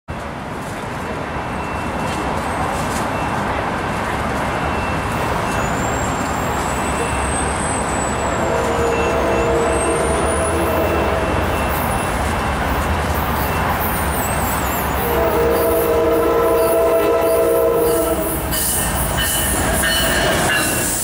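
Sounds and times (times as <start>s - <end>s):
low rumble of traffic: 0.1s - 20.6s
distant train horn chord: 8.2s - 11.9s, 15.0s - 18.4s.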